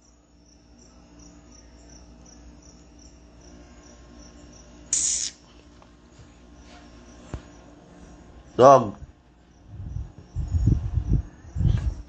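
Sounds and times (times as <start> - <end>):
faint cricket chirping: 0.0 - 12.0
loud burst of hiss: 4.9 - 5.4.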